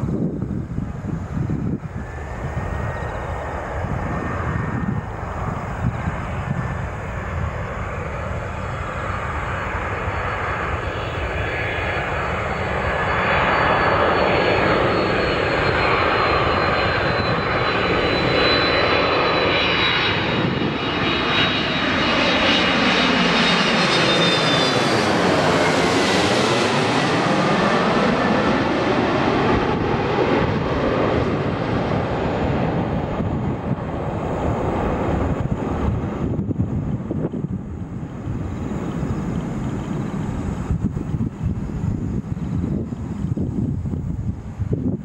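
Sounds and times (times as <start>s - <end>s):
jet engines rumbling and whining: 0.0s - 45.0s.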